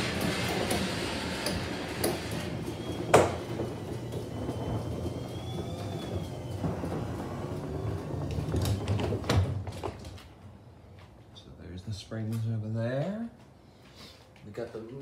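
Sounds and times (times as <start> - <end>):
garage door clunks: 0.0 - 10.2
garage door opener rumbling: 0.0 - 10.6.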